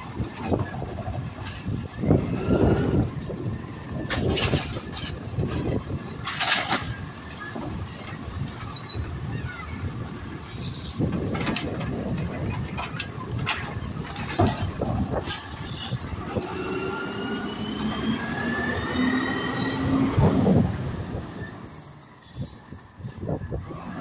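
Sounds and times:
diesel engine and hydraulics: 0.0 - 24.0
cart and arm clattering knocks: 11.0 - 16.4.

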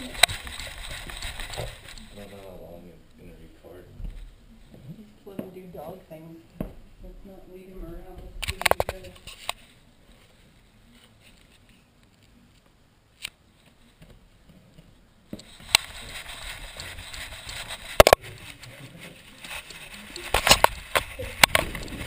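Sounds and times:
strap and housing rustling: 0.0 - 2.5, 13.2 - 22.0.

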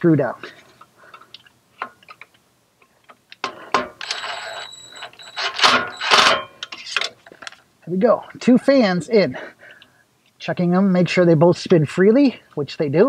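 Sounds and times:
cordless drill whining: 4.0 - 6.4.

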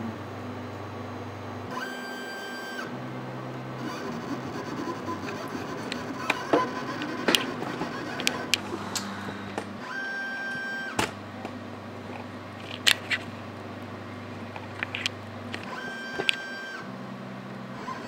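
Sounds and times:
pitched motor whine: 0.0 - 18.0
stepper motors humming: 0.0 - 18.0
sharp clicks: 14.6 - 16.4.

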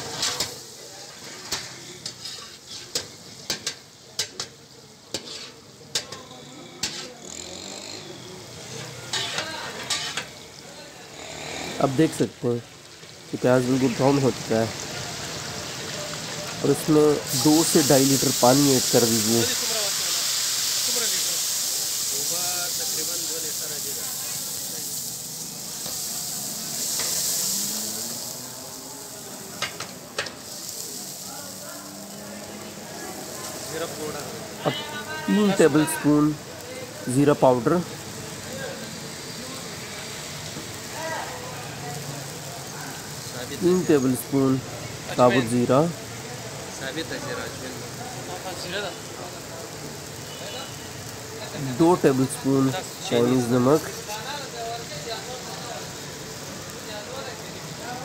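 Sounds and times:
metal ladle scraping pan: 0.0 - 4.5, 5.1 - 7.2, 8.6 - 10.4
food sizzling in hot oil: 0.0 - 58.0.

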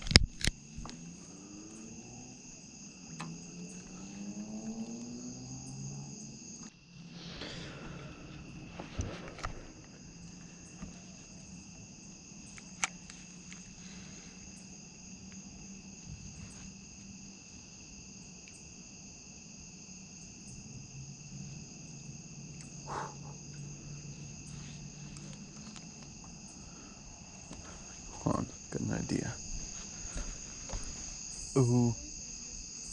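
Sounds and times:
sharp click: 0.0 - 1.0
insects trilling: 0.0 - 32.9.

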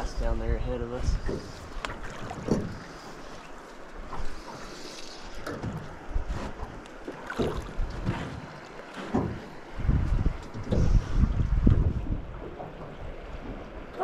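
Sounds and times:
wind on microphone: 0.0 - 2.9, 9.3 - 14.0
water lapping against hull: 0.0 - 14.0.

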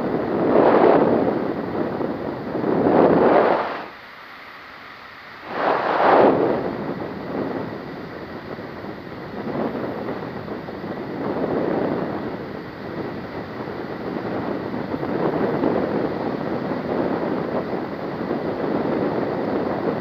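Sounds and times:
wind rushing over microphone: 0.0 - 4.1, 5.2 - 20.0.

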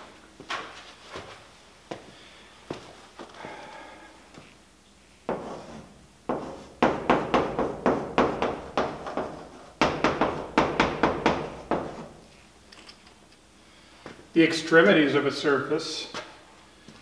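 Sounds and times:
chalk writing on blackboard: 5.3 - 6.8, 11.3 - 12.2.

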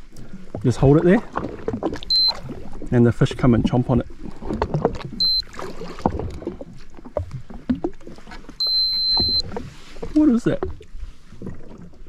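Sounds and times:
high-pitched electronic beep: 2.1 - 2.4, 5.2 - 5.5, 8.6 - 9.4.

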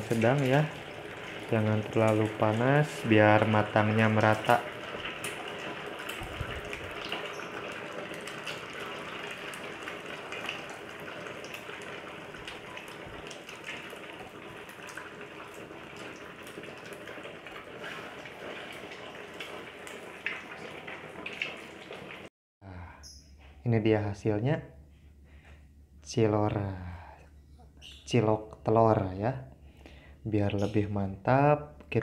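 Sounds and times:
food deep-frying in oil: 0.0 - 22.3
oil crackles and pops: 0.0 - 22.3.

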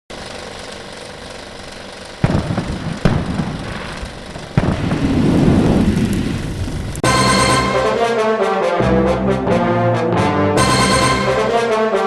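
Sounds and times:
rumbling crackle: 0.1 - 7.0
firework bangs: 2.1 - 7.1.

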